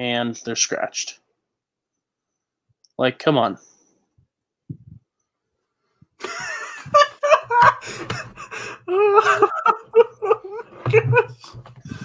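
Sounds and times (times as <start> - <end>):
person laughing: 6.2 - 12.0.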